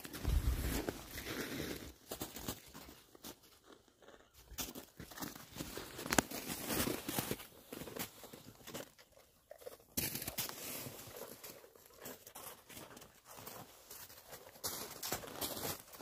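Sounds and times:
footsteps crunching in snow: 0.0s - 8.8s, 10.0s - 16.0s.

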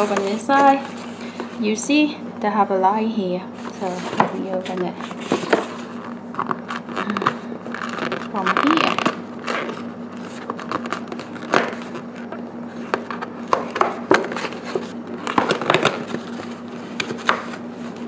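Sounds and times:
cardboard tear strip ripping: 6.4s - 12.1s.

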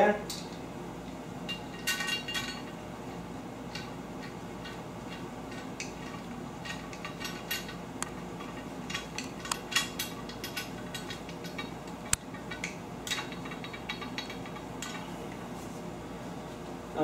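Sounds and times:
steady low hum: 0.0s - 17.0s
metal hardware clicking and clinking: 0.3s - 0.6s, 1.5s - 2.8s, 3.7s - 15.1s.

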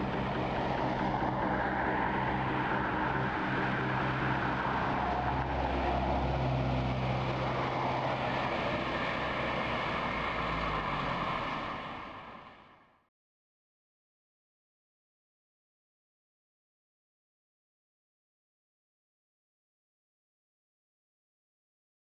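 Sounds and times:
bus engine droning: 0.0s - 13.0s.

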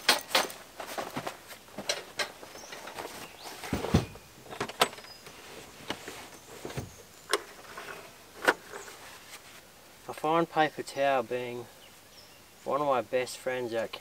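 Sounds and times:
camping gear being handled: 0.0s - 9.7s
heavy thump: 3.6s - 4.2s.

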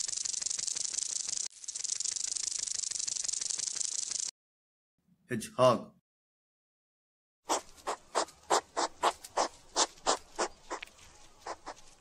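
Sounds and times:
hedgehog snuffling: 7.5s - 12.0s.

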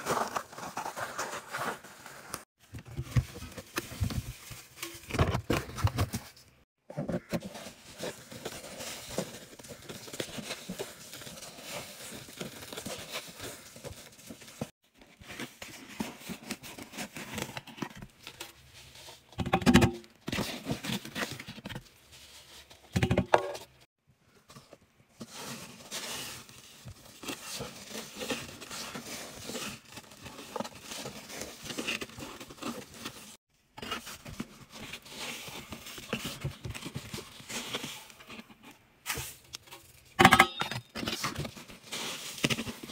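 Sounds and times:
cardboard tearing and crinkling: 0.0s - 2.3s.

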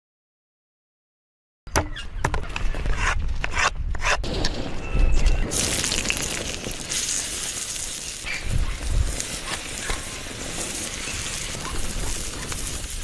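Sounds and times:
wood fire crackling: 4.2s - 13.0s
food sizzling on hot stone: 5.3s - 13.0s.

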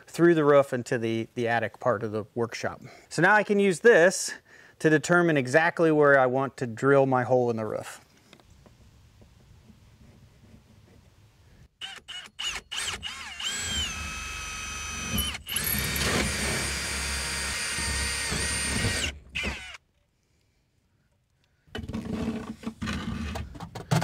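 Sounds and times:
power drill whining: 11.8s - 19.8s.

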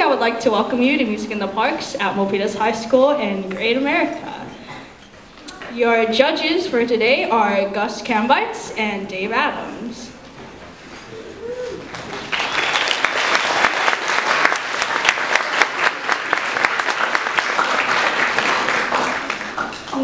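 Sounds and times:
audience applauding: 11.3s - 20.0s.

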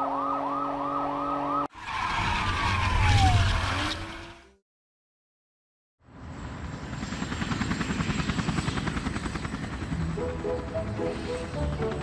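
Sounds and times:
helicopter rotor chopping: 6.3s - 12.0s.

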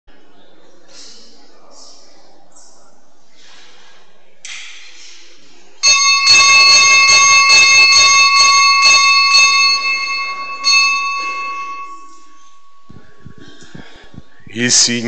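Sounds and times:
small bell ringing: 5.8s - 13.3s.

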